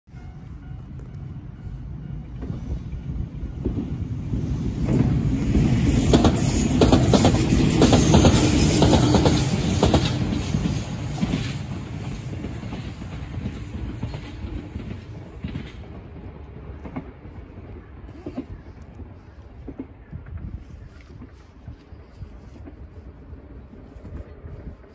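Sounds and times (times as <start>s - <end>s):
train wheels clattering over joints: 3.6s - 18.4s.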